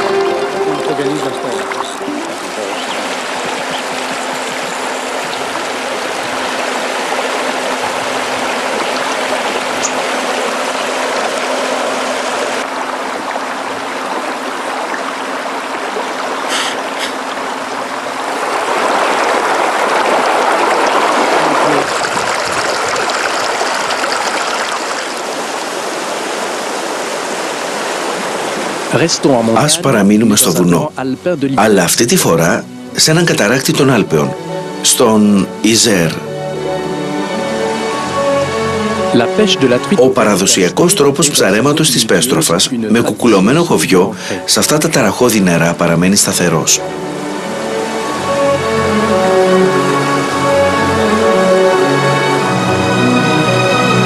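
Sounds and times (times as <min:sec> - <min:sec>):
stream running over rocks: 0:00.0 - 0:30.9.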